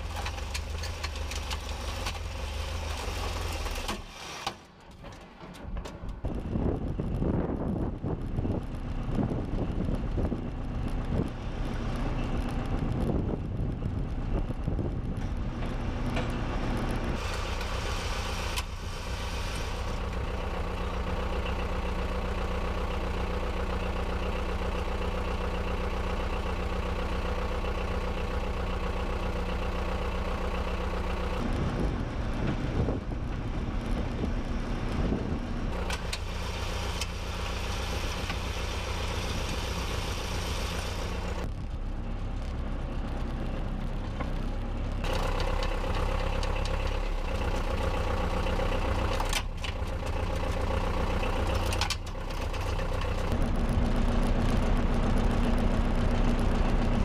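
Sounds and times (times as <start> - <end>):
diesel engine idling: 4.7 - 57.0
wind buffeting microphone: 6.1 - 11.6, 12.3 - 15.9, 31.4 - 35.8.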